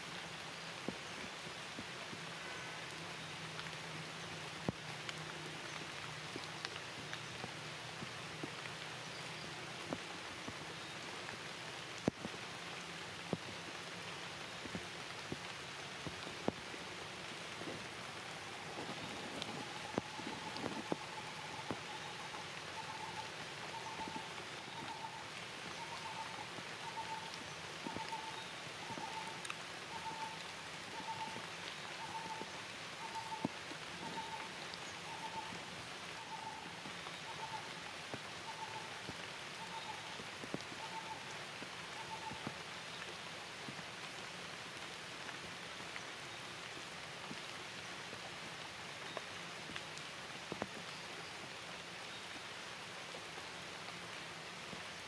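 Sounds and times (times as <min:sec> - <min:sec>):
steady rain falling: 0:00.0 - 0:55.0
raindrop clicks: 0:04.5 - 0:09.2, 0:12.0 - 0:13.6, 0:14.6 - 0:35.7, 0:49.0 - 0:51.0.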